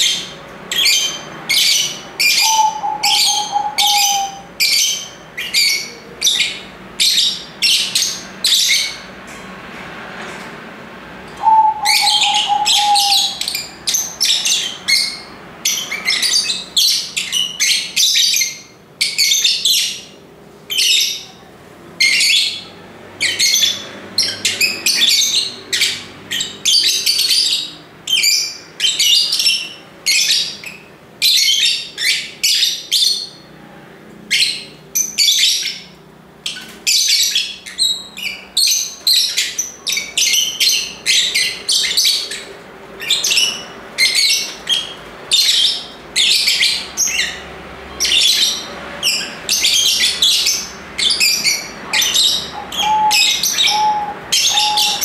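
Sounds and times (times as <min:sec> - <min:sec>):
lovebirds chirping: 0:00.0 - 0:09.0, 0:11.3 - 0:21.4, 0:34.3 - 0:55.0.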